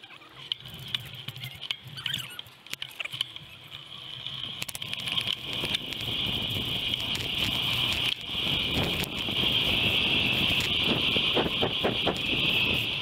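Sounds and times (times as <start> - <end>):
bicycle clicks and rattles: 0.0 - 13.0
wind hiss: 4.2 - 13.0.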